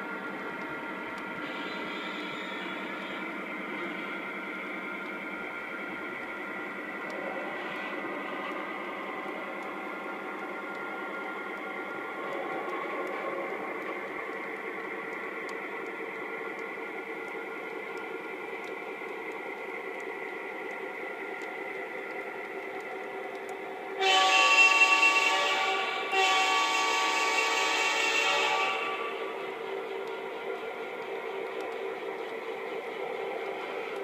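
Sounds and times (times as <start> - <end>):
model train running on track: 0.0 - 34.0
train horn blasts: 1.4 - 4.2, 24.0 - 29.4.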